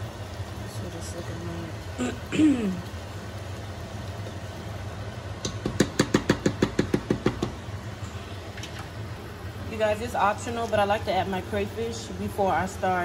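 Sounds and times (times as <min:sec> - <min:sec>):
steady low hum: 0:00.0 - 0:13.0
spoon rapping against pot: 0:05.4 - 0:07.5.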